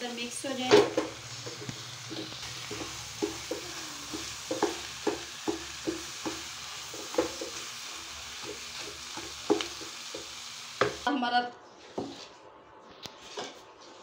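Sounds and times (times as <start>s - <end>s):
frying sizzle: 0.0s - 11.2s
wooden spatula scraping wok: 0.5s - 11.0s.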